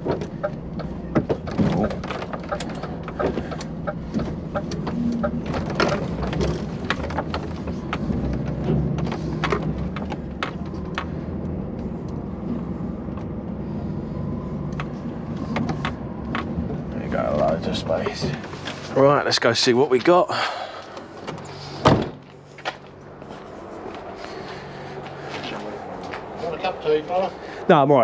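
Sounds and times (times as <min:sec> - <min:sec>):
irregular clicks and knocks: 0:00.0 - 0:12.2, 0:14.7 - 0:16.8
lorry diesel engine running: 0:00.0 - 0:27.8.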